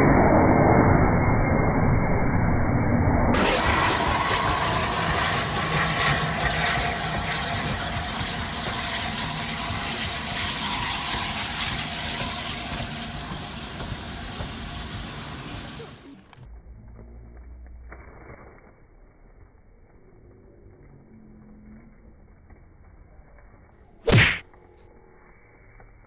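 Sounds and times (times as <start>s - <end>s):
faint low rumble: 0.0s - 6.5s, 16.3s - 26.0s
steam train passing: 3.4s - 16.3s.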